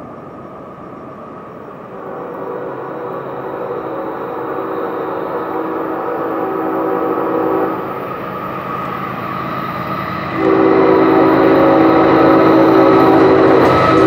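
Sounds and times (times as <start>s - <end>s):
train rumbling: 0.0s - 14.0s
train air horn blasts: 1.9s - 8.1s, 10.3s - 14.0s.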